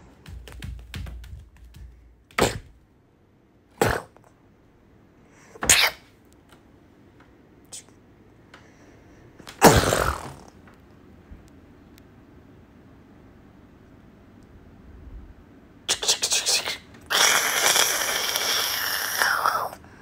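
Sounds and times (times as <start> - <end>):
mouth-made breathy bursts: 16.3 - 20.0.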